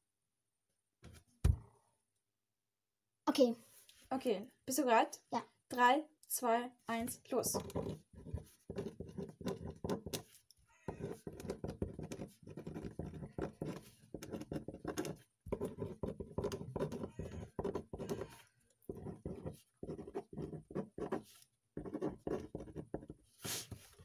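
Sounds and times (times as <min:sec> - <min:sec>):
pen scratching on paper: 0:07.3 - 0:23.9.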